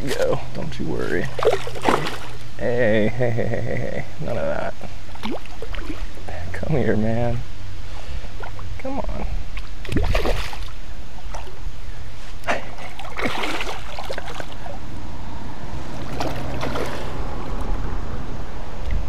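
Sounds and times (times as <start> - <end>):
steady low rumble: 0.0 - 19.0
fish splashing in water: 1.3 - 2.5, 5.1 - 6.2, 9.6 - 11.6, 12.8 - 14.8, 15.8 - 17.7.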